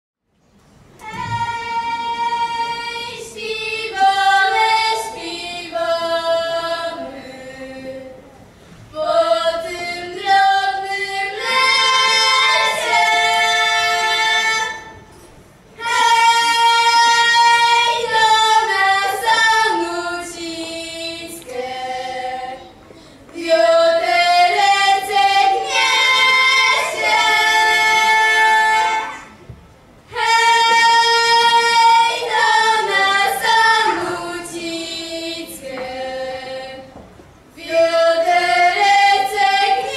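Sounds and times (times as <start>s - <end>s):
girls singing in harmony: 1.0s - 39.9s.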